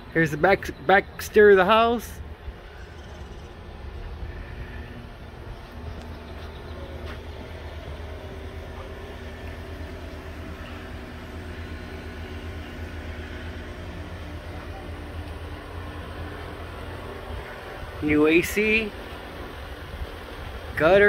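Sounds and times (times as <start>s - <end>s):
air conditioner unit humming: 0.0s - 21.0s.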